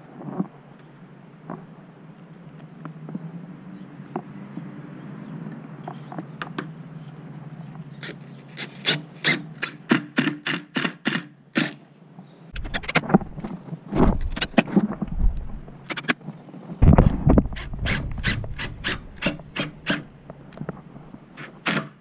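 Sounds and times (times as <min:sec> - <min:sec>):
cordless drill driving screws: 0:17.6 - 0:20.0.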